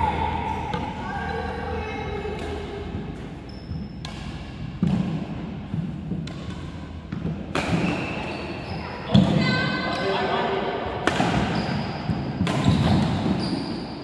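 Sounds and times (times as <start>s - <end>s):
racket hitting shuttlecock: 4.0s - 8.3s, 11.0s - 13.5s.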